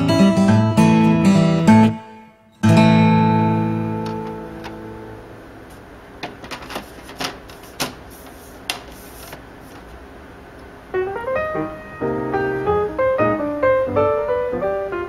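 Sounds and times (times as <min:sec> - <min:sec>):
acoustic guitar music: 0:00.0 - 0:05.6, 0:11.0 - 0:15.0.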